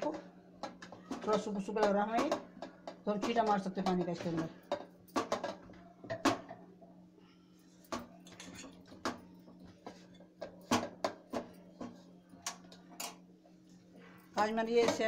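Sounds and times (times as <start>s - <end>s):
dough kneaded in steel bowl: 0.0s - 6.2s.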